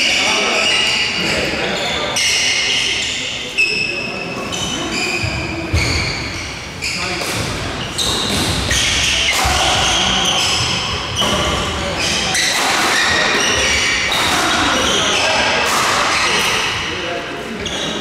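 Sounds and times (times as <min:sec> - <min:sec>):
chatter of voices echoing: 0:00.0 - 0:18.0
shoes squeaking on wooden floor: 0:00.6 - 0:16.4
rackets hitting shuttlecock: 0:07.2 - 0:16.9.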